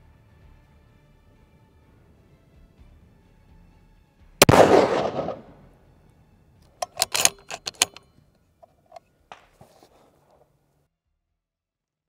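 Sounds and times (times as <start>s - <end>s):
rifle bolt metallic clicks: 4.4s - 5.6s, 6.6s - 9.5s
rifle shot tail: 4.4s - 5.8s.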